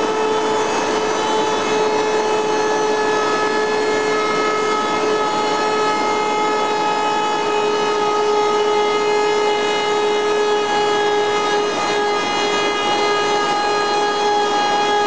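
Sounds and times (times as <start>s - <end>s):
machine whining: 0.0s - 15.0s
rasping wood cutting: 0.0s - 15.0s.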